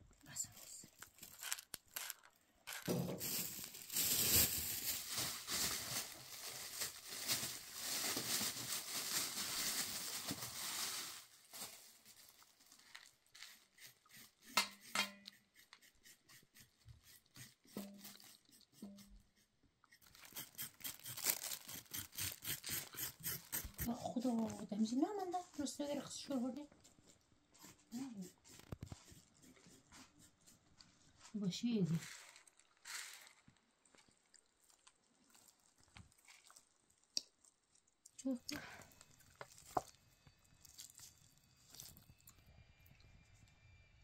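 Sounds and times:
plastic bag rustling: 0.5 - 13.8, 20.0 - 24.6, 31.8 - 33.6
knife scraping carrots: 13.4 - 24.4.

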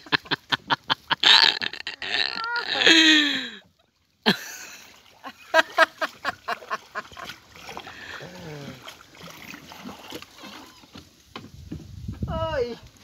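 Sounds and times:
woman laughing: 0.0 - 3.6, 4.3 - 7.3
woman exclaiming: 2.0 - 3.6.

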